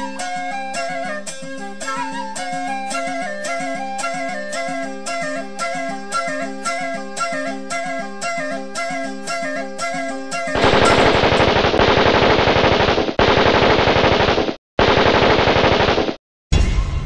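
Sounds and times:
flute melody: 0.0s - 11.2s
automatic rifle fire: 10.6s - 16.2s.

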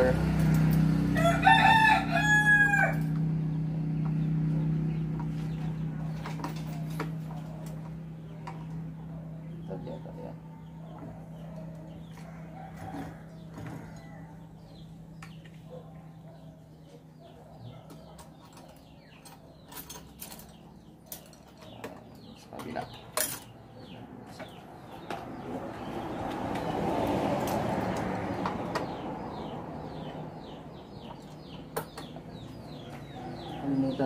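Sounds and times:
birds chirping: 0.0s - 34.0s
small metal clicks and clinks: 18.1s - 23.6s.

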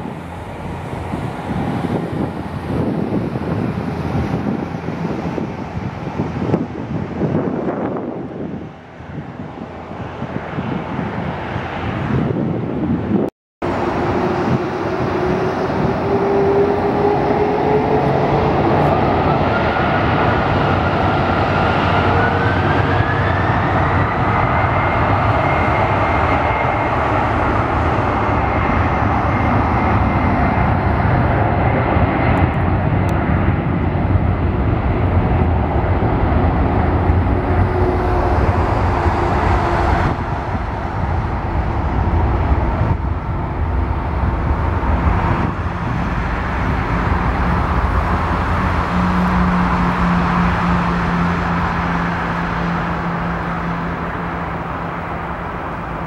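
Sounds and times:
jet engines spooling up: 0.0s - 56.0s.

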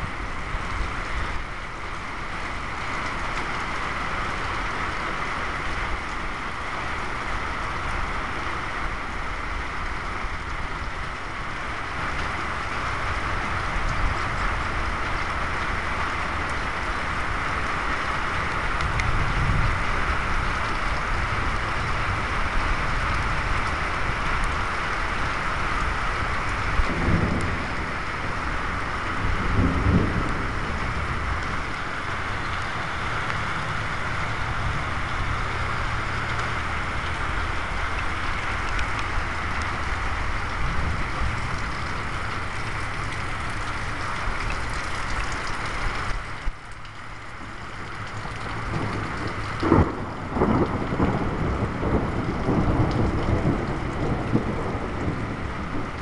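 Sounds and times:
steady rain falling: 0.0s - 56.0s
wind rumbling on microphone: 0.0s - 56.0s.

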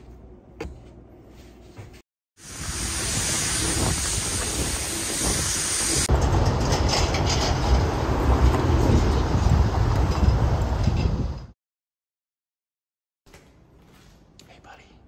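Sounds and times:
heavy road traffic: 2.4s - 11.5s
wind on microphone: 2.5s - 6.1s, 8.4s - 11.5s.

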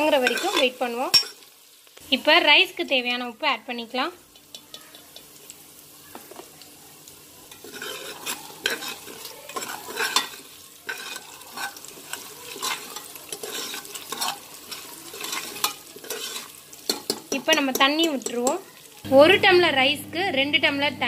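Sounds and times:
ghee sizzling: 0.0s - 21.0s
metal ladle scraping and stirring: 0.1s - 1.4s, 7.5s - 18.4s.

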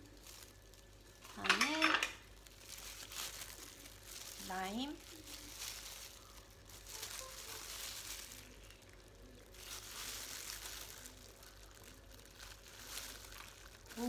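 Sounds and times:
plastic gloves crinkling: 0.0s - 14.0s.

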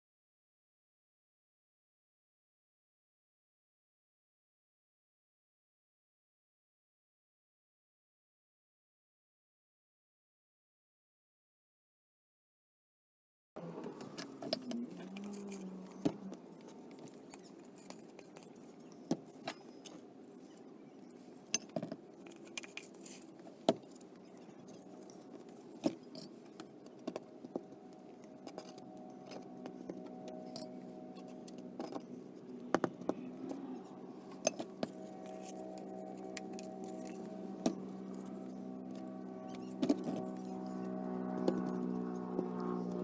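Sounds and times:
steady low hum: 13.6s - 43.0s.

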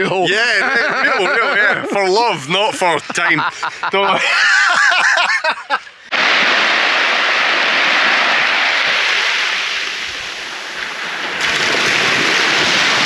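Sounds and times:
waves washing onto beach: 6.0s - 13.0s.

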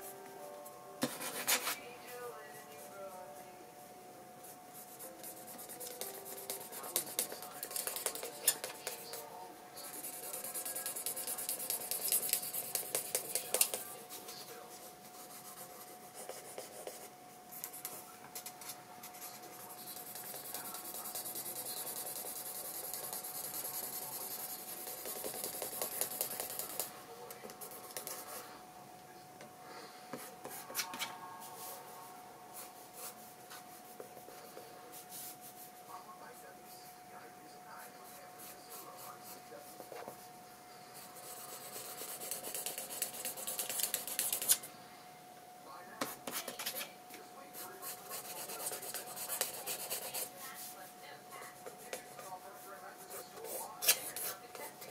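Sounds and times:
faint hum: 0.0s - 54.9s
pencil scratching on paper: 1.0s - 1.8s, 4.8s - 28.4s, 32.6s - 35.6s, 37.8s - 40.2s, 41.0s - 44.6s, 46.0s - 46.9s, 47.5s - 54.9s.

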